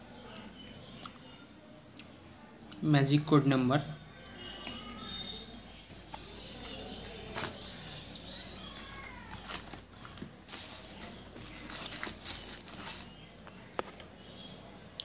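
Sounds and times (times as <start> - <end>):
paper and plastic rustling: 6.2 - 13.3.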